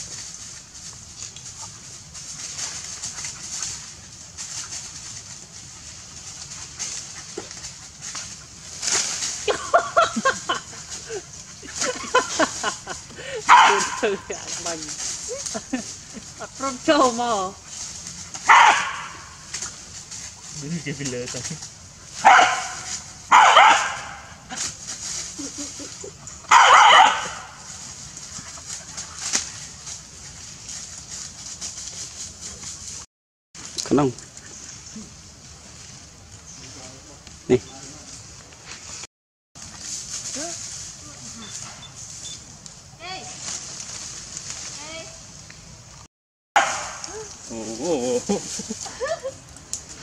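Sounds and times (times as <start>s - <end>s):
dry leaves rustling: 0.0s - 50.0s
dog barking: 13.5s - 14.2s, 18.5s - 19.2s, 22.2s - 24.4s, 26.5s - 27.6s, 46.6s - 47.1s.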